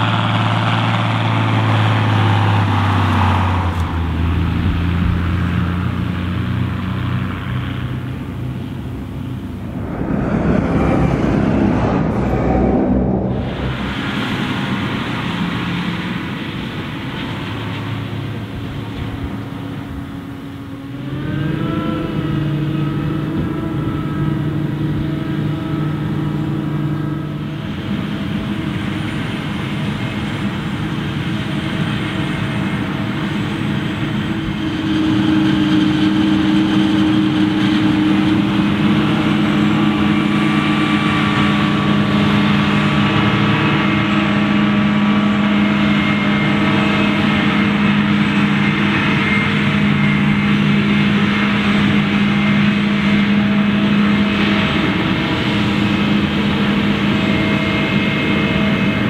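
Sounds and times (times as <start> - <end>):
loud engine drone: 0.0 - 59.0.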